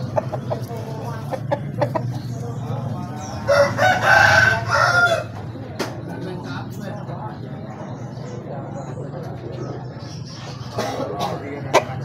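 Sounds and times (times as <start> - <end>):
rooster crowing: 3.5 - 5.3.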